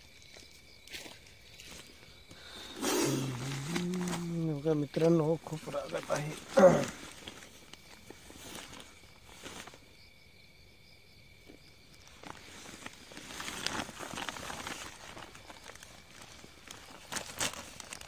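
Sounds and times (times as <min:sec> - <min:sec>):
insect trill: 0:00.0 - 0:18.0
plastic sack rustling on grass: 0:01.6 - 0:10.0, 0:12.0 - 0:18.0.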